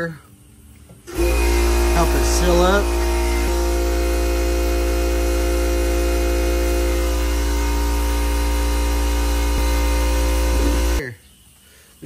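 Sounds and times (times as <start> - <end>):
machine hum with low drone: 0.3 - 11.0.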